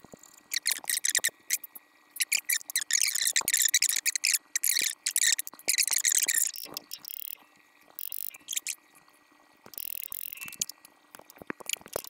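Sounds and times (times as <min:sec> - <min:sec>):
socket wrench ratchet clicking: 0:06.4 - 0:07.4, 0:08.0 - 0:08.7, 0:09.7 - 0:12.0.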